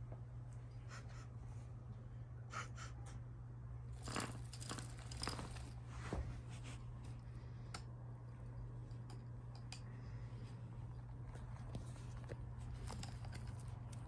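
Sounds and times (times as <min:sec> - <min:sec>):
kittens scratching and rustling: 0:04.0 - 0:07.7, 0:08.3 - 0:14.0.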